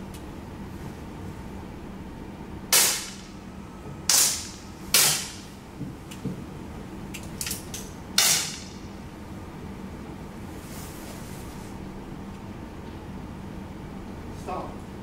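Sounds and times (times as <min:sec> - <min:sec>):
air pistol shots: 0:02.7 - 0:03.4, 0:04.1 - 0:05.5, 0:08.2 - 0:08.8.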